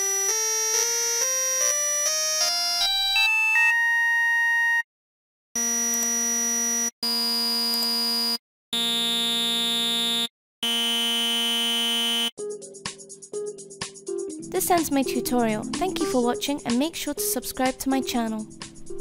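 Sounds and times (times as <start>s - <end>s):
buzzy synthesizer tone: 8.8s - 12.3s.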